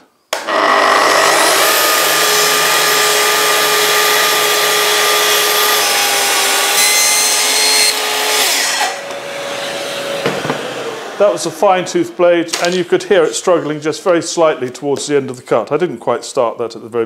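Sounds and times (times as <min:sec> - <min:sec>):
track saw ripping wood: 0:00.4 - 0:09.2
saw winding down: 0:00.4 - 0:11.6.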